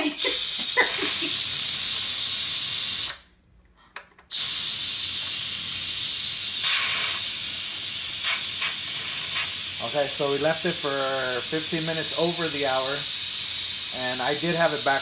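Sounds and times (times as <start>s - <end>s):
pressure valve steam hissing: 0.1s - 3.3s, 4.3s - 15.0s.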